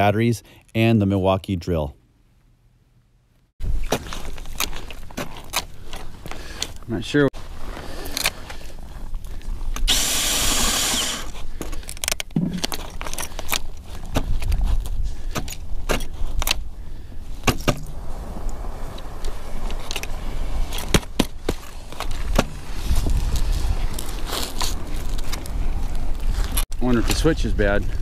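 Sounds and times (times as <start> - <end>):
ice auger drilling into ice: 9.8 - 11.3
burst of hiss: 9.9 - 11.3.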